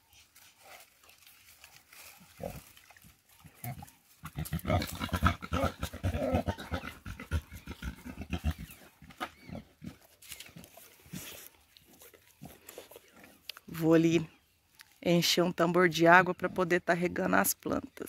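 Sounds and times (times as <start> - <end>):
pigs grunting: 2.2 - 13.4.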